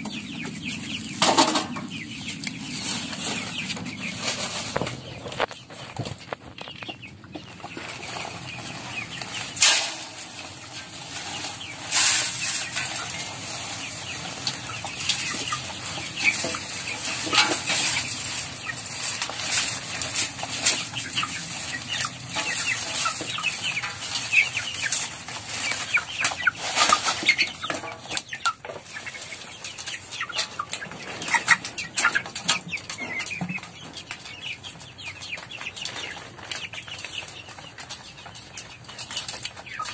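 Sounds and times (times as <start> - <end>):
chickens clucking and cheeping: 0.0 - 39.9.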